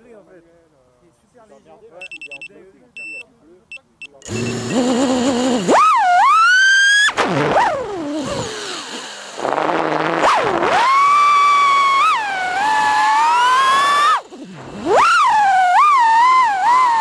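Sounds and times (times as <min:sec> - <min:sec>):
quadcopter motors whining: 0:04.2 - 0:17.0.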